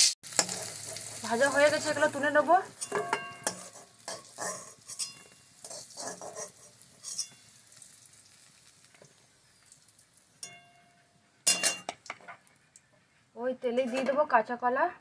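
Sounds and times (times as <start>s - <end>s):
oil sizzling: 0.0s - 13.3s
metal spatula scraping a pan: 0.3s - 8.7s, 10.4s - 12.6s, 13.7s - 14.3s.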